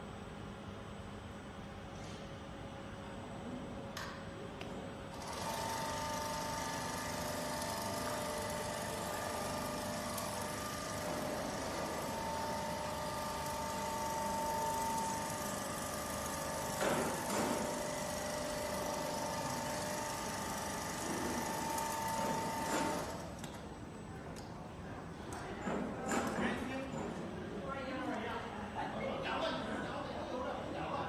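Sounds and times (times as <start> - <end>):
machinery humming: 4.4 - 24.2.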